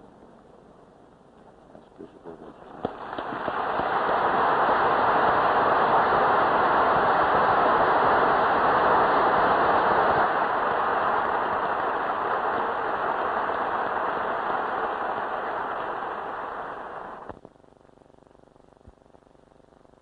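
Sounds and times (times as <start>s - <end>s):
large audience applauding: 2.6s - 17.2s.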